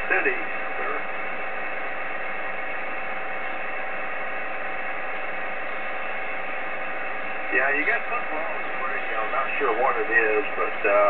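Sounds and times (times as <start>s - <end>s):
faint steady tones: 0.0s - 11.0s
radio band noise hiss: 0.0s - 11.0s.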